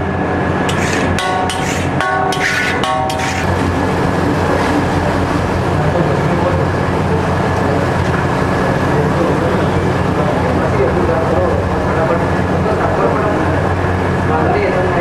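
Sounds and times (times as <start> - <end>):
street noise: 0.0 - 15.0
metal spatula clanging on griddle: 0.7 - 3.5.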